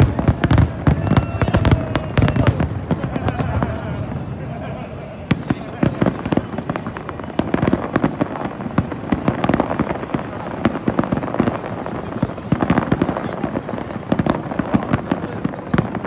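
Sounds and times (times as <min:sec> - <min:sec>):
crackling fireworks stars: 0:00.0 - 0:16.0
fireworks bangs and pops: 0:00.0 - 0:16.0.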